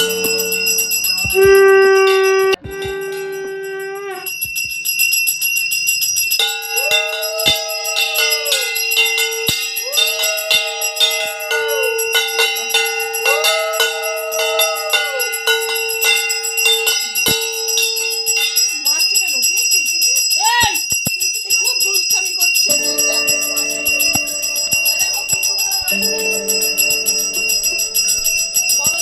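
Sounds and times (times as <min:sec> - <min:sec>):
hand bell ringing fast: 0:00.0 - 0:29.0
steady pitched drone: 0:22.8 - 0:29.0.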